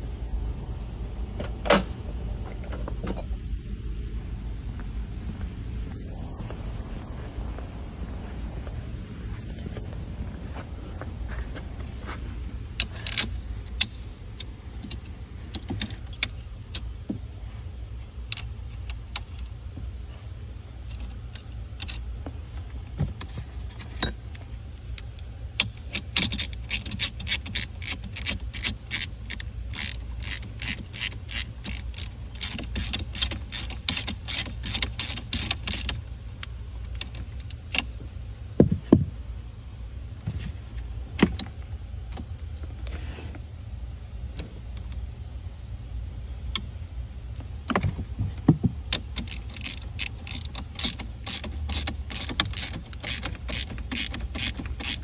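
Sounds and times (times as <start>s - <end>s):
steady low hum: 0.0s - 55.0s
socket ratchet clicking: 25.0s - 37.9s, 48.8s - 55.0s.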